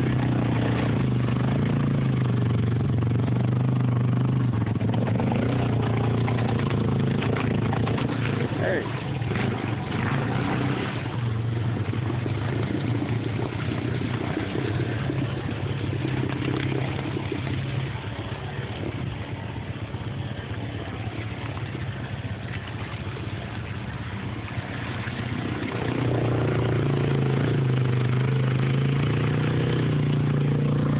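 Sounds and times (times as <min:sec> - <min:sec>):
atv engine running: 0:00.0 - 0:30.9
wading through muddy water: 0:00.0 - 0:30.9.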